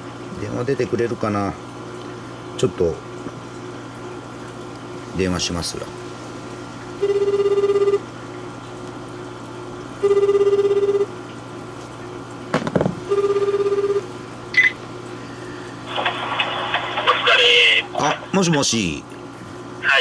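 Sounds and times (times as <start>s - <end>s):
telephone ringback tone: 7.0s - 8.0s, 10.0s - 11.1s, 13.1s - 14.8s.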